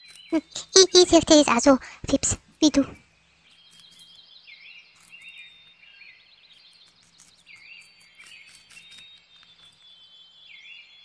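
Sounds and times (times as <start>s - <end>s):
guinea pig chirps: 0.0s - 4.2s, 4.9s - 10.8s
guinea pigs munching grass: 0.0s - 4.2s, 6.5s - 10.5s.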